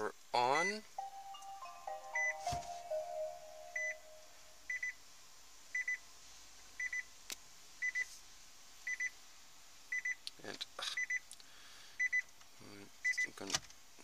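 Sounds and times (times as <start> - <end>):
startup chime: 1.0 - 4.6.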